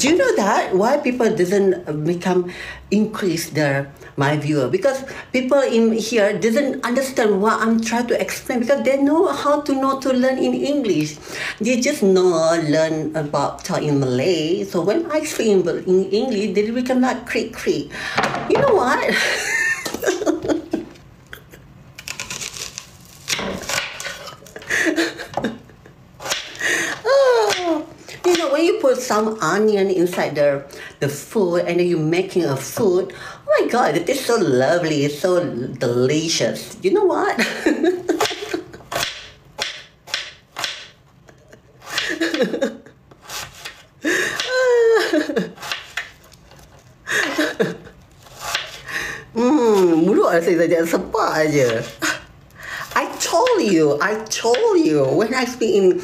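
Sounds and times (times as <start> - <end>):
woman laughing and giggling: 19.0 - 21.7, 24.1 - 26.0, 37.4 - 38.9, 41.2 - 43.0, 44.0 - 45.6, 47.1 - 48.0
woman laughing softly: 24.0 - 26.0.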